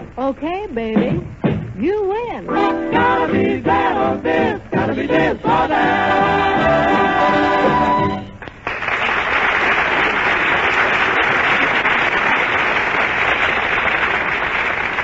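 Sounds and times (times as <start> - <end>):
audience applauding: 7.5 - 15.0.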